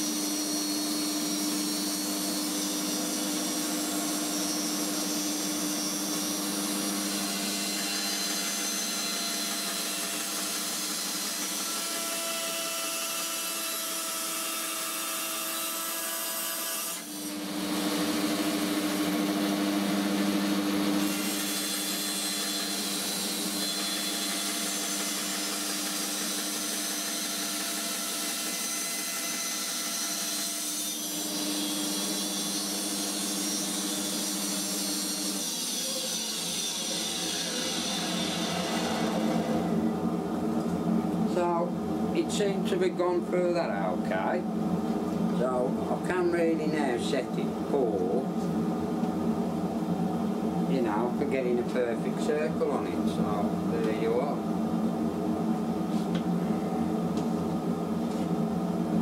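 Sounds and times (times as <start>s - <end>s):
band saw cutting plywood: 0.0s - 39.8s.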